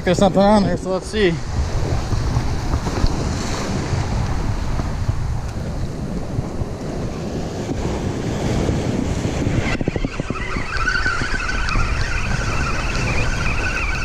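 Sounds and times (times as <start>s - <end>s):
wind buffeting microphone: 0.0s - 14.0s
surf washing against rocks: 0.8s - 14.0s
fishing reel clicking and whining: 9.4s - 14.0s.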